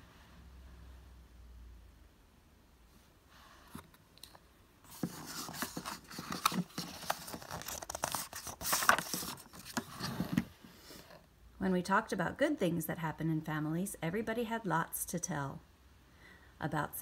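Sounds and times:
book pages turning: 0:03.7 - 0:10.5.

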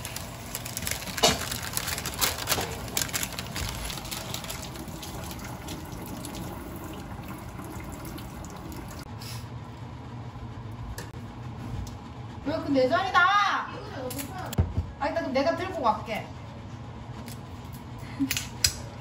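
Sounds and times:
baking paper crinkling: 0:00.0 - 0:05.2.

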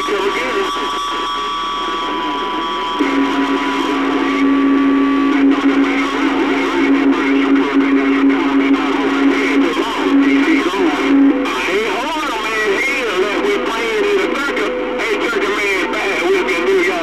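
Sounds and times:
high whistling carrier tone: 0:00.0 - 0:13.1
radio static: 0:00.0 - 0:17.0
low steady tone: 0:00.1 - 0:12.0.

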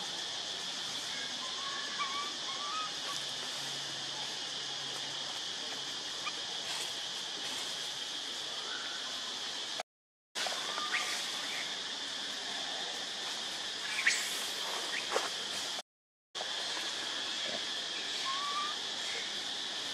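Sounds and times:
insects chorus: 0:00.0 - 0:09.8, 0:10.4 - 0:15.8, 0:16.4 - 0:19.9.

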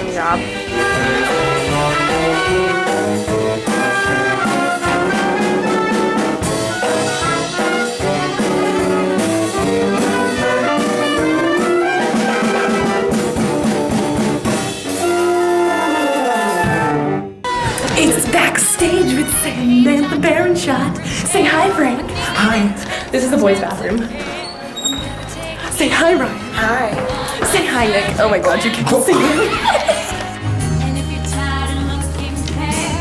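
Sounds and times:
brass and woodwind band playing: 0:00.0 - 0:22.6.

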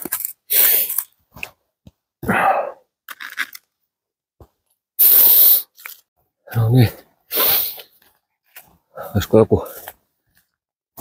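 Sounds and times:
plastic bottle rustling and crunching: 0:00.0 - 0:01.5.

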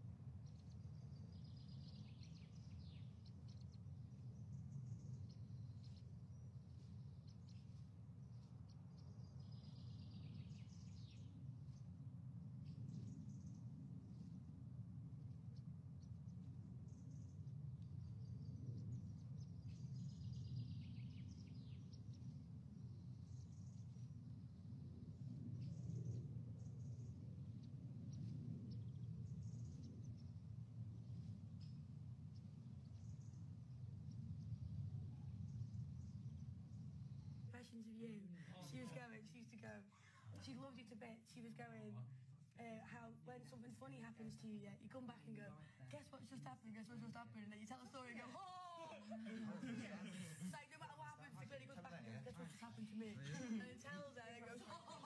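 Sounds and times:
steady low hum: 0:00.0 - 0:55.0
faint bird chirps: 0:00.3 - 0:12.0, 0:12.6 - 0:14.6, 0:15.2 - 0:42.0.

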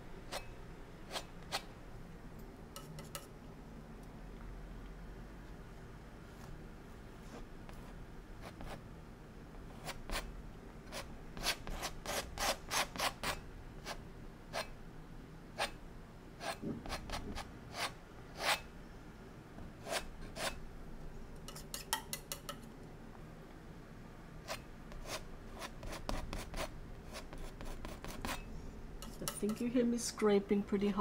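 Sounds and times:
palette knife scraping paint: 0:01.1 - 0:01.7, 0:02.8 - 0:03.3, 0:10.9 - 0:14.0, 0:16.4 - 0:18.6, 0:19.8 - 0:20.6, 0:24.4 - 0:29.8.

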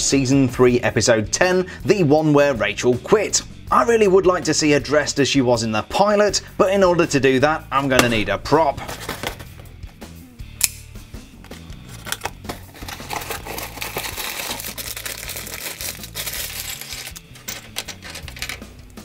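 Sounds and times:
quiet background music: 0:00.0 - 0:19.0
plastic bag crinkling: 0:11.8 - 0:18.4.

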